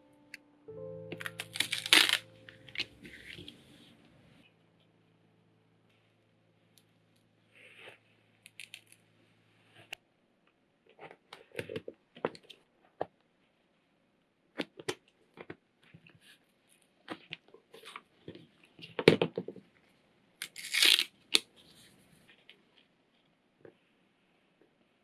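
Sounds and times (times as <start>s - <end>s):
tape pulled and torn: 20.4s - 21.4s.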